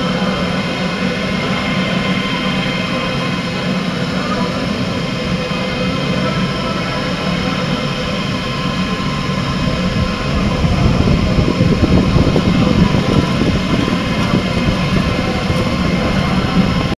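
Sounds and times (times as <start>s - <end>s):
three d printer whining drone: 0.0s - 17.0s.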